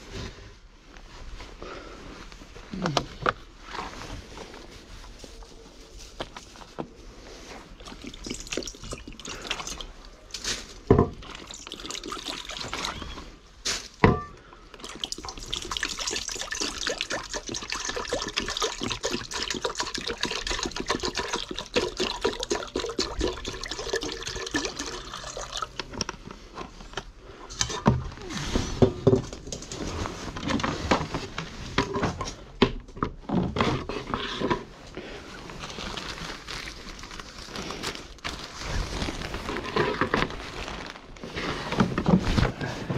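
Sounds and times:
water pouring into metal bowl: 7.9 - 9.9, 11.2 - 12.9, 14.8 - 25.8.

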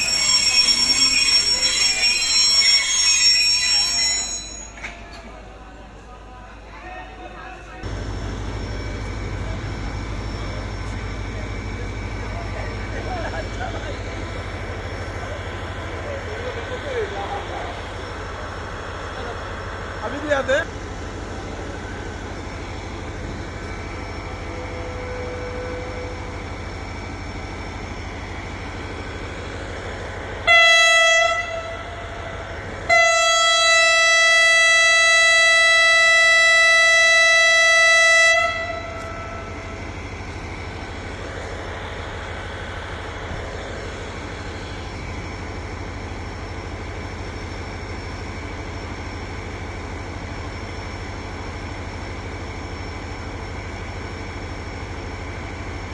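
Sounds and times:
diesel locomotive horn: 24.4 - 26.5, 30.4 - 40.0.

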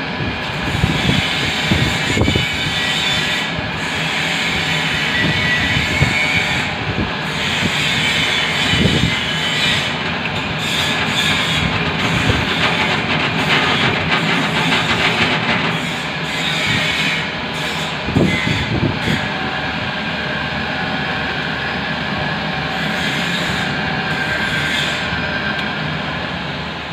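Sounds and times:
drill press grinding metal: 0.5 - 19.5.

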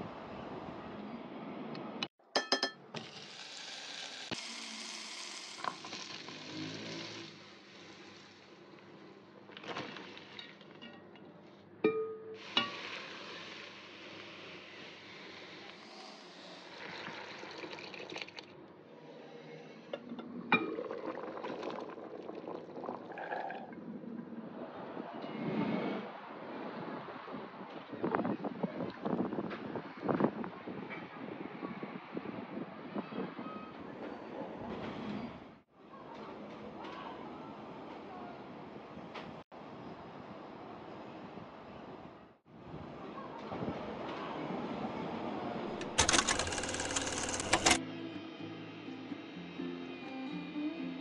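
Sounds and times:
cookware clinking: 2.4 - 2.9
food sizzling in a pan: 3.0 - 8.5, 12.4 - 17.4.

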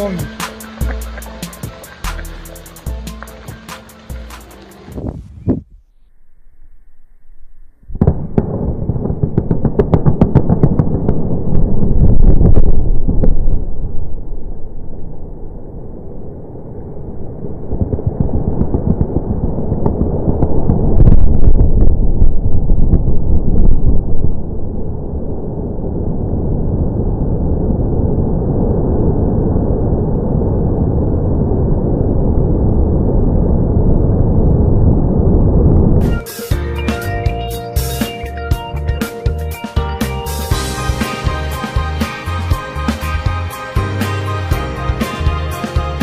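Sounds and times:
sharp cracks: 0.0 - 5.0, 7.9 - 13.9
blast rumble: 0.0 - 46.0.

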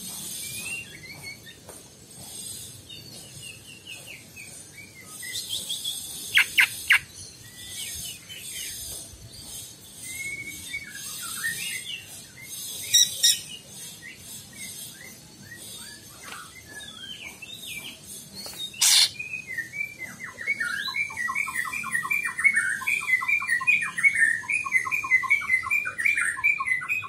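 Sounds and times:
bird singing chirps and warbles: 0.0 - 27.0
sharp bird notes: 18.8 - 19.2.

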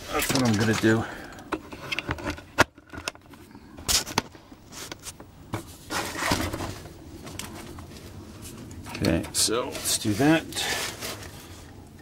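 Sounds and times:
scraping and rustling: 3.9 - 11.7.

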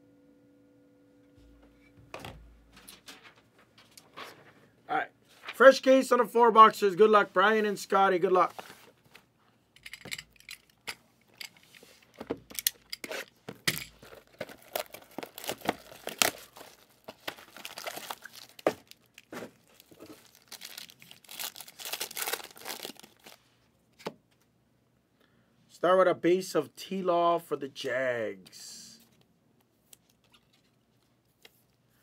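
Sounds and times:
plastic wrapping tearing and crinkling: 14.0 - 23.4.

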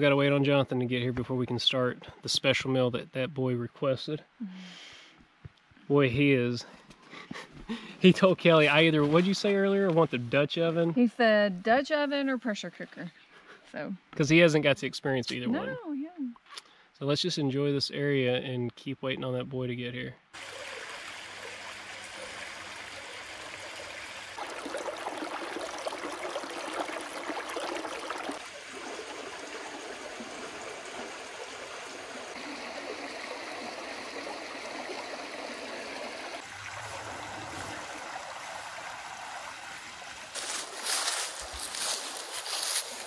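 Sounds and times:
creek babbling over stones: 20.4 - 43.0.

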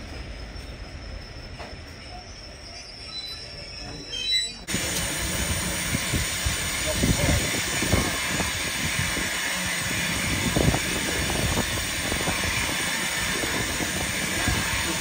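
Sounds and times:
steam hissing from locomotive: 4.7 - 15.0.

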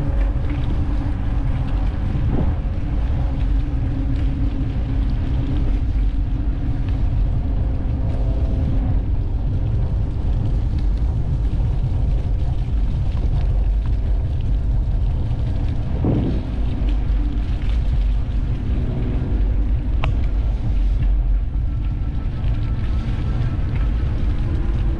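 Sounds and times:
wind and road rumble: 0.0 - 24.9.

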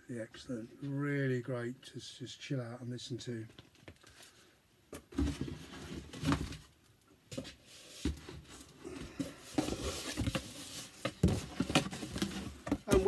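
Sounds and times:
vinyl records being sorted: 3.4 - 13.0.

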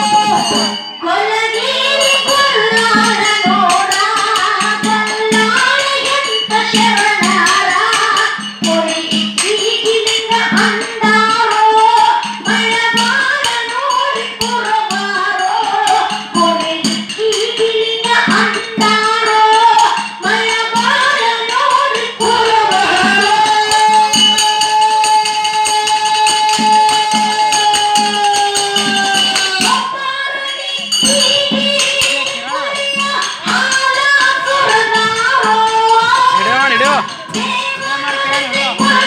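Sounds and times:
jingling percussion: 0.0 - 39.0
barrel drum beat: 2.2 - 39.0
folk singing: 9.8 - 39.0.

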